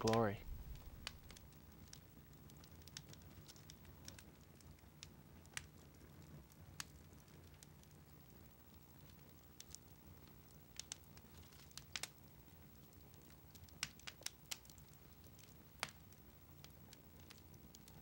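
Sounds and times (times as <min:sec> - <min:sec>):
faint low hum: 0:00.0 - 0:18.0
sharp clicks and crackles: 0:00.0 - 0:18.0.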